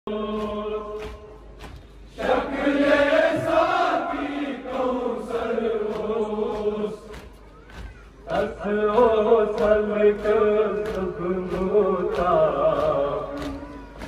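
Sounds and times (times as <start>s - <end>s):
men chanting a lament: 2.2s - 7.2s, 8.3s - 14.0s.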